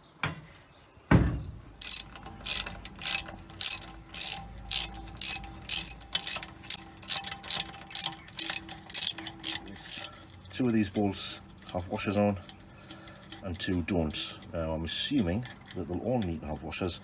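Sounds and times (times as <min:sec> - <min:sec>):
thump: 0:01.1 - 0:01.6
ratchet wrench clicking: 0:01.8 - 0:10.1.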